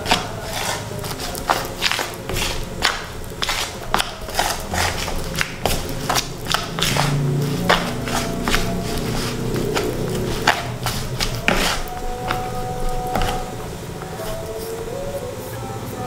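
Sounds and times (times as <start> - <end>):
metal utensil scraping mixing bowl: 0.0 - 14.9.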